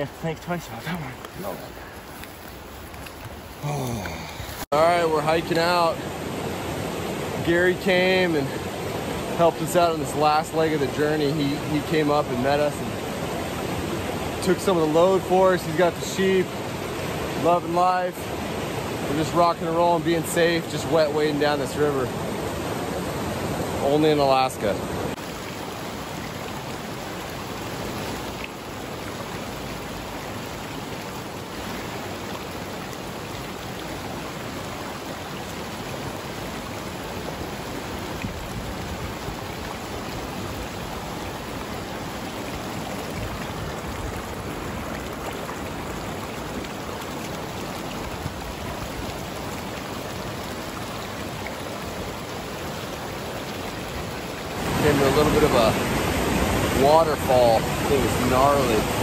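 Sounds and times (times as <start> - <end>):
creek rushing over rocks: 0.0 - 59.0.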